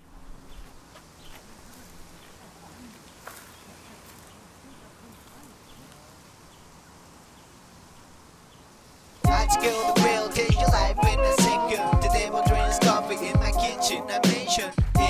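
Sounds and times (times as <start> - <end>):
hip-hop music with rapping: 9.3 - 15.0.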